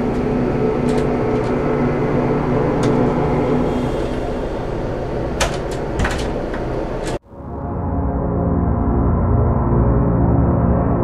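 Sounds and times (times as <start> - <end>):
ship engines droning: 0.0 - 7.8.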